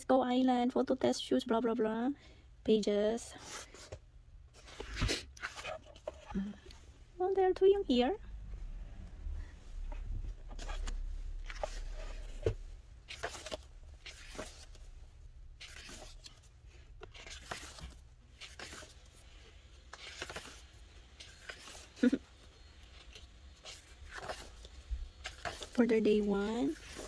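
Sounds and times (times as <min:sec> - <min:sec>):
book pages turning: 0:03.4 - 0:06.4, 0:09.8 - 0:27.0.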